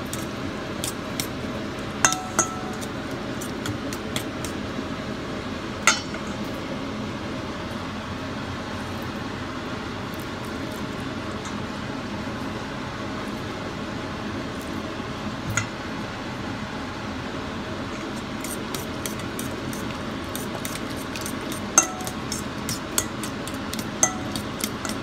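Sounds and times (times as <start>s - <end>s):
fork clinking on metal bowl: 2.0s - 3.0s, 18.4s - 25.0s.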